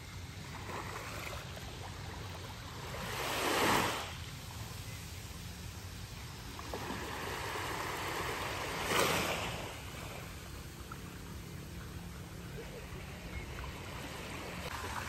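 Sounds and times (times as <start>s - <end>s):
waves washing onto sand: 2.7s - 4.9s, 6.3s - 11.0s.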